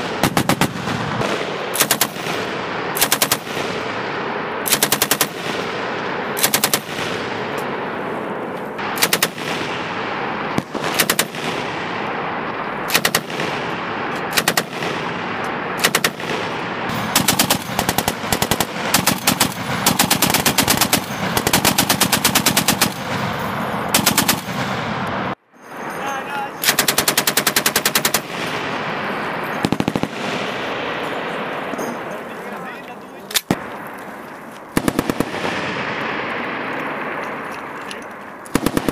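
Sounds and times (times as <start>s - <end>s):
machine gun bursts: 1.7s - 3.5s, 6.4s - 6.9s, 16.9s - 24.7s, 26.6s - 28.7s, 38.5s - 38.9s.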